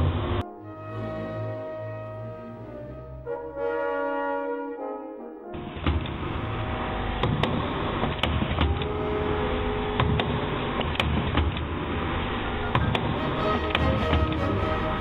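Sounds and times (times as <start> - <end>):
sharp mechanical clacks and knocks: 5.7 - 6.3, 7.1 - 8.9, 9.9 - 12.0, 12.6 - 14.4.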